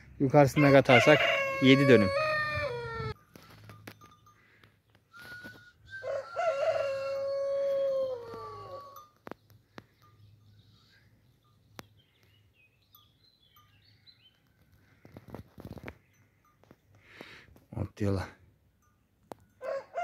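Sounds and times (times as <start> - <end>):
rooster crowing: 0.5 - 3.2, 6.0 - 9.0, 19.6 - 20.0
faint bird chirps: 9.3 - 14.6.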